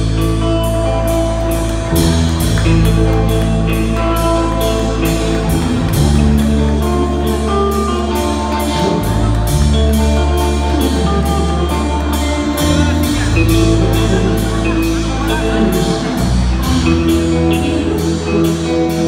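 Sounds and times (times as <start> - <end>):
drum kit beat: 0.0 - 19.0
sustained bass notes: 0.0 - 19.0.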